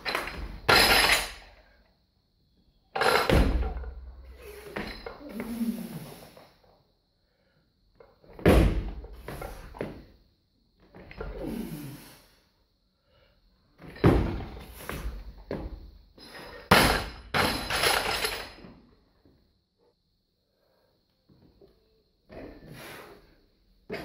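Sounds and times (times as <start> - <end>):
barbell plates thudding and clanking: 0.1 - 1.4, 3.0 - 5.1, 13.9 - 14.6, 16.4 - 18.6
barbell crashing onto floor: 3.0 - 4.0, 16.6 - 18.6.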